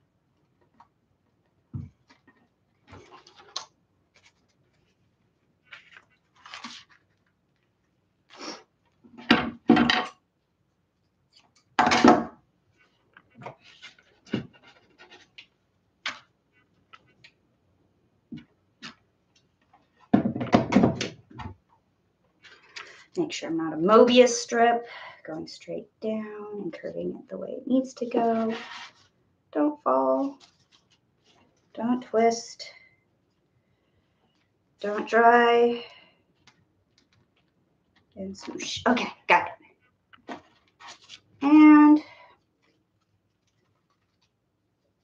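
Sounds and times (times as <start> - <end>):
craft materials rustling: 1.8 - 9.1, 30.0 - 31.8, 39.8 - 41.4, 42.2 - 45.0.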